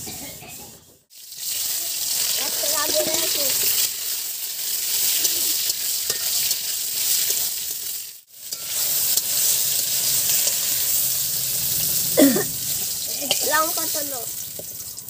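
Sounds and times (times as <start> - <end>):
vegetables sizzling in oil: 1.1 - 15.0.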